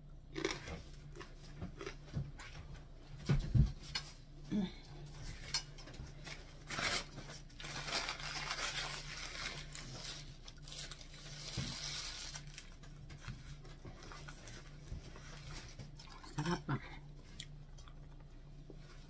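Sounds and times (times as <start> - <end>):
dried fish tearing and crinkling: 6.2 - 14.6.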